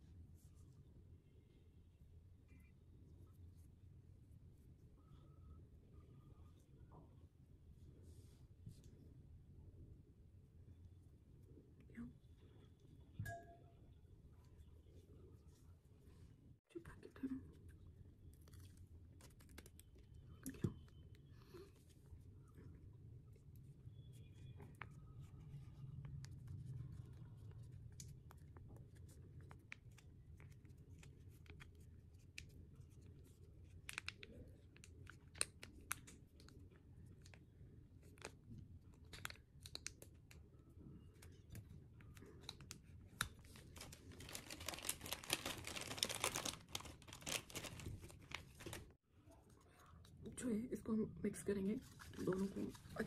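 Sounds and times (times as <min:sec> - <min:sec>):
sachet crinkling and tearing: 0:18.3 - 0:20.2, 0:33.4 - 0:36.6, 0:42.4 - 0:48.9.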